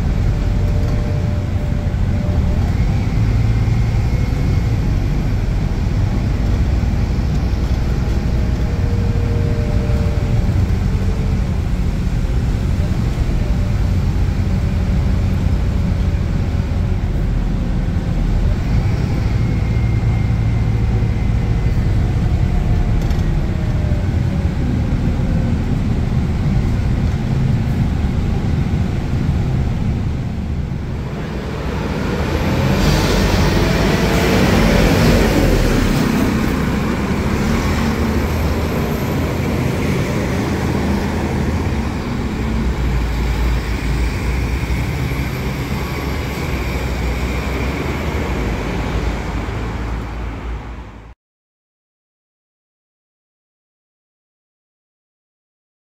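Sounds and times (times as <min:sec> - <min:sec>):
bus diesel engine drone: 0:00.0 - 0:51.2.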